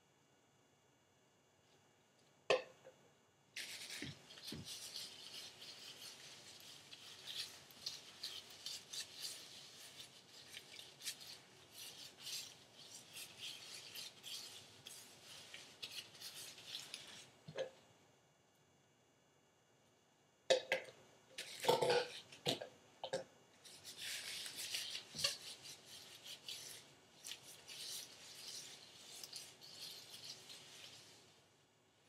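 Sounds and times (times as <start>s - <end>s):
gloved hands rubbing wet hair: 3.6s - 17.4s, 23.6s - 31.5s.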